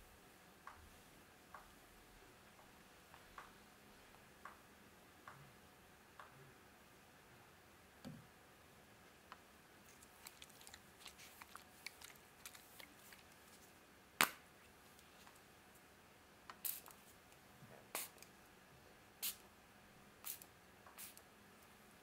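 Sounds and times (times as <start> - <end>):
faint crackles and clicks: 9.3 - 13.8
spray bottle spritzing: 16.6 - 16.9, 18.0 - 18.2, 20.3 - 21.2.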